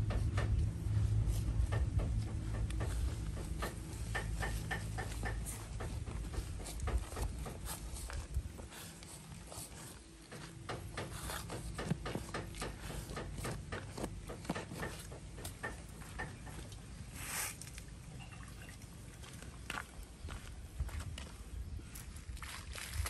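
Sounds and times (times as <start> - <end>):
hands patting gritty soil: 0.2 - 18.0.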